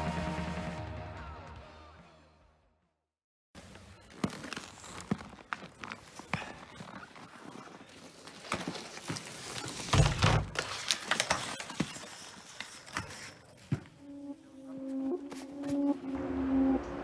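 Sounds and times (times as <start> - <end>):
skis scraping and crunching snow: 3.6 - 16.1.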